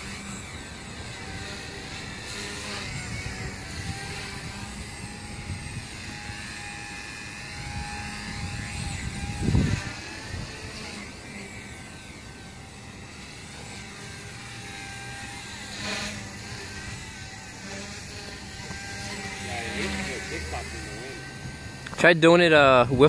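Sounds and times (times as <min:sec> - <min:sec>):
rc helicopter rotor whine: 0:00.0 - 0:23.0
wind buffeting microphone: 0:01.1 - 0:11.0.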